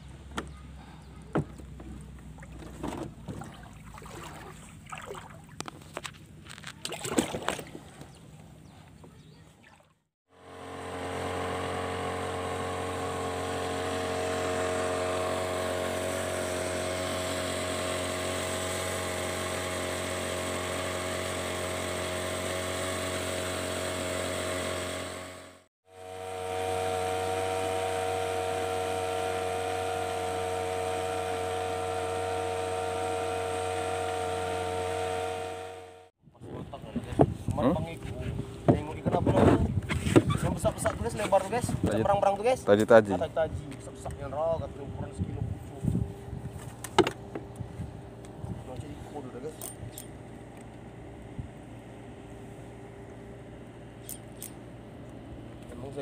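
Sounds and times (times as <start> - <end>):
boat motor running with high whine: 10.3 - 56.0.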